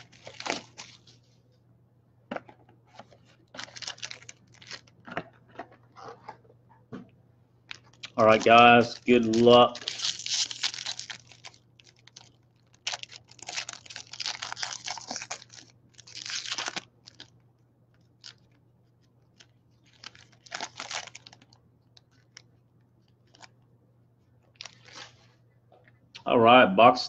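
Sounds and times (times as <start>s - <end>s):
plastic shrink-wrap crinkling: 0.0s - 1.2s, 2.9s - 6.3s, 7.7s - 23.5s, 24.5s - 25.3s.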